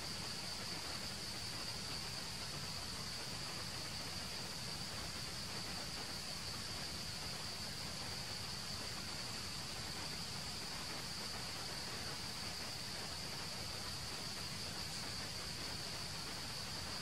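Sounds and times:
insects droning: 0.0 - 17.0
soft even hiss: 0.0 - 17.0.

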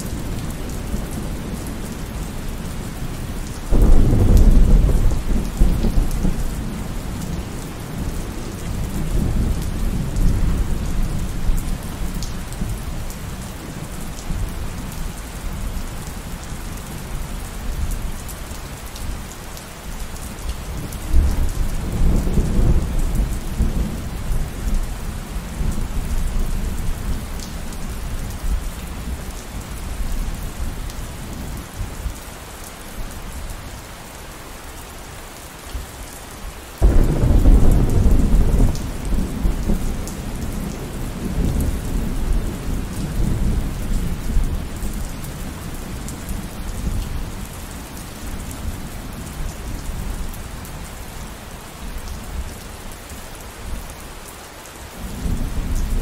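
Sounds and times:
steady rain falling: 0.0 - 56.0
low rumbling thunder: 3.7 - 12.8, 20.8 - 27.4, 36.8 - 47.4.

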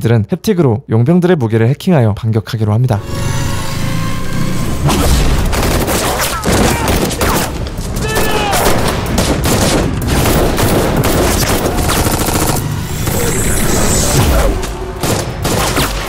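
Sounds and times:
rapid automatic rifle fire: 8.6 - 12.7, 15.0 - 16.0.

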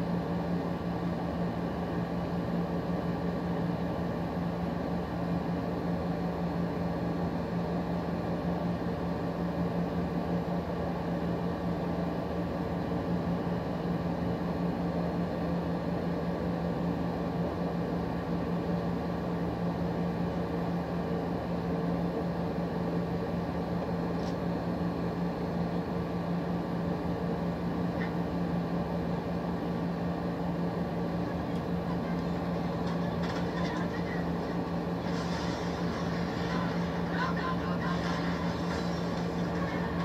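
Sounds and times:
machine hum: 30.7 - 40.0.

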